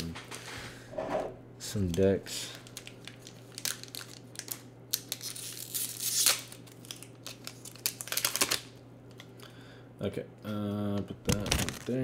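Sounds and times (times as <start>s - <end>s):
foil wrapper tearing: 2.6s - 8.8s, 11.4s - 12.0s.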